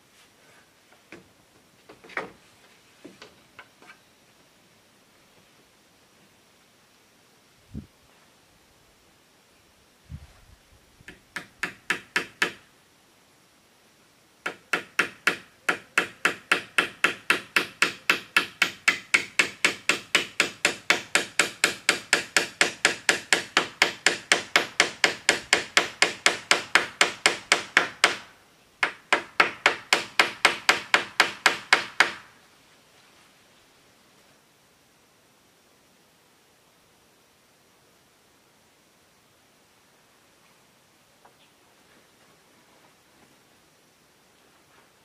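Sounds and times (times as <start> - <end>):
hammer striking bamboo roof: 11.0 - 12.7, 14.4 - 32.4.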